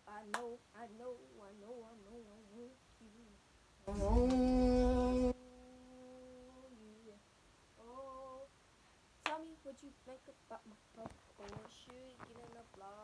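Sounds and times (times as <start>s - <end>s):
girl humming: 2.1s - 7.2s, 7.8s - 8.5s.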